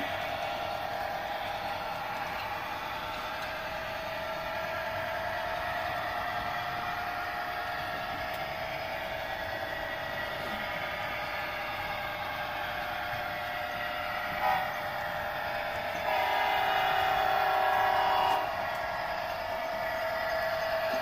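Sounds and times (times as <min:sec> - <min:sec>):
locomotive running sound: 0:00.0 - 0:21.0
model locomotive horn: 0:14.3 - 0:15.0, 0:15.9 - 0:18.8.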